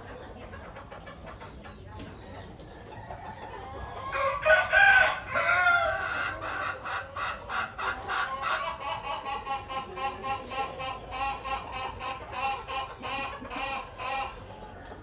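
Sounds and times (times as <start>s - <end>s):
chickens clucking: 0.0s - 15.0s
rooster crowing: 4.1s - 6.0s.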